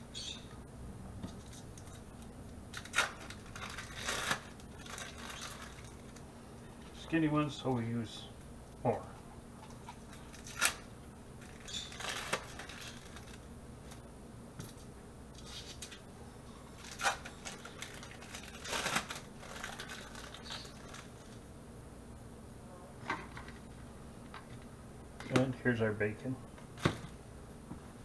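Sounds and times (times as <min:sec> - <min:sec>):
plastic wrapper crinkling: 0:02.7 - 0:06.3, 0:09.8 - 0:14.0, 0:16.7 - 0:21.4.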